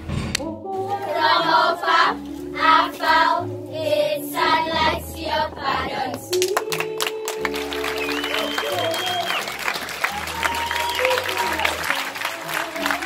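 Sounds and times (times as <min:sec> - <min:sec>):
children singing together: 0:00.7 - 0:06.3.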